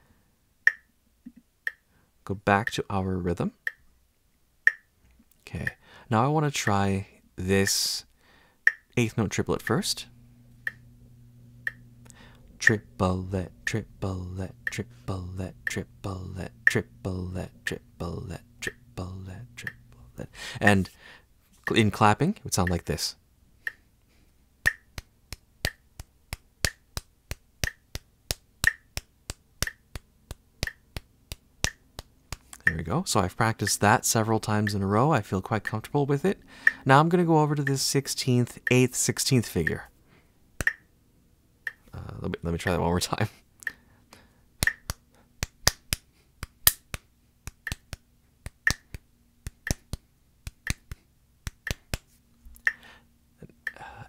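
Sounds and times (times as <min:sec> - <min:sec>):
metronome ticking: 0:00.6 - 0:01.9, 0:03.5 - 0:03.9, 0:04.6 - 0:05.0, 0:08.6 - 0:10.9, 0:11.5 - 0:20.8, 0:21.6 - 0:23.0, 0:23.6 - 0:23.9, 0:24.6 - 0:33.0, 0:36.6 - 0:37.0, 0:40.6 - 0:40.9, 0:41.6 - 0:41.9, 0:44.6 - 0:46.8, 0:52.6 - 0:53.9
hand claps: 0:24.7 - 0:32.4, 0:44.6 - 0:52.1
hands clapping: 0:44.6 - 0:52.1.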